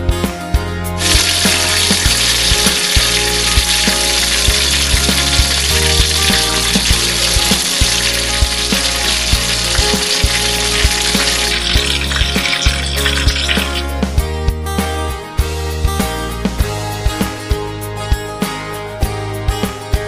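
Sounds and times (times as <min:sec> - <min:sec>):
background music with a beat: 0:00.0 - 0:20.0
oil sizzling and crackling: 0:01.0 - 0:14.0.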